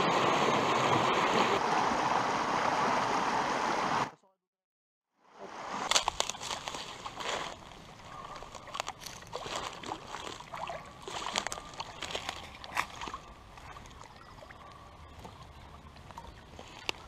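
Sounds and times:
stream running: 0.0s - 4.2s, 5.2s - 17.0s
water splashing: 5.4s - 17.0s.

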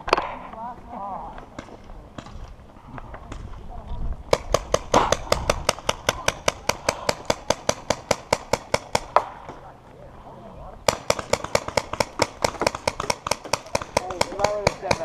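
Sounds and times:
paintball marker firing rapidly: 4.3s - 9.4s, 10.9s - 15.0s.

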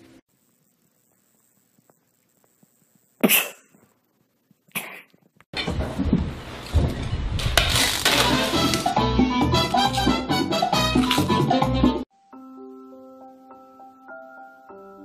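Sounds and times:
kitten sneezing: 3.2s - 3.7s
loud music: 8.1s - 12.0s.

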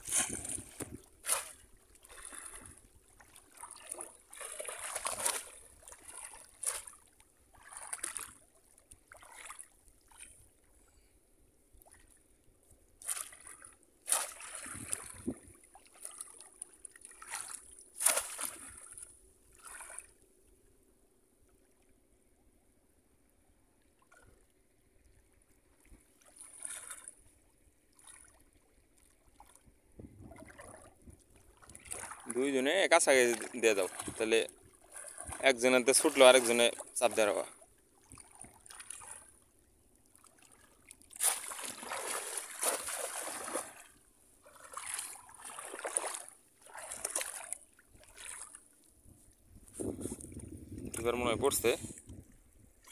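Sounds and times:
fish traps plunged into water: 0.0s - 7.0s, 13.0s - 20.1s, 31.6s - 39.4s, 40.9s - 48.6s
people wading through water: 0.0s - 10.6s, 13.0s - 20.2s, 25.6s - 52.9s.

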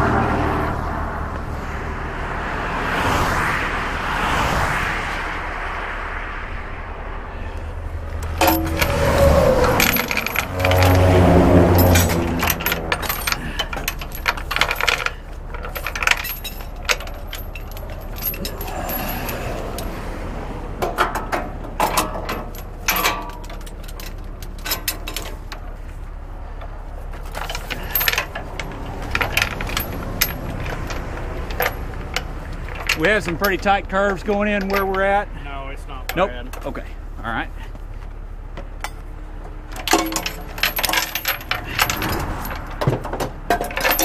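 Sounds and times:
metallic clinking and jangling: 8.1s - 20.0s, 20.8s - 26.0s, 26.6s - 35.1s, 39.7s - 44.0s
low rumble: 40.2s - 44.0s.

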